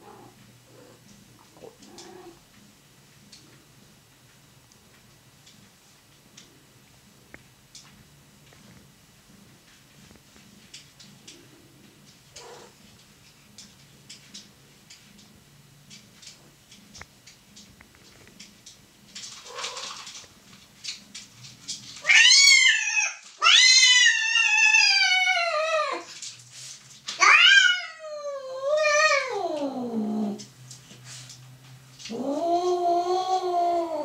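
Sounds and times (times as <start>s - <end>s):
cat yowling: 22.0s - 26.1s, 27.2s - 30.4s.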